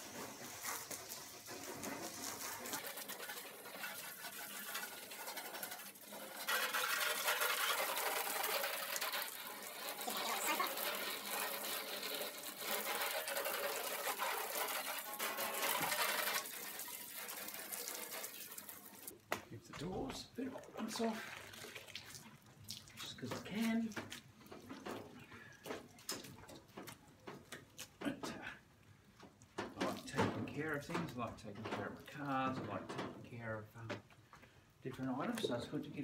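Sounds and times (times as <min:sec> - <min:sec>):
hose spraying water on metal: 0:00.0 - 0:19.2, 0:20.9 - 0:25.2.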